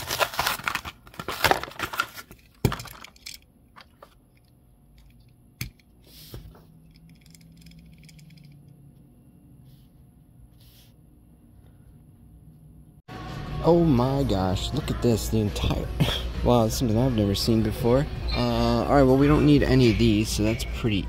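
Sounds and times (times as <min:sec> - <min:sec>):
plastic packaging crinkling and tearing: 0:00.0 - 0:03.0.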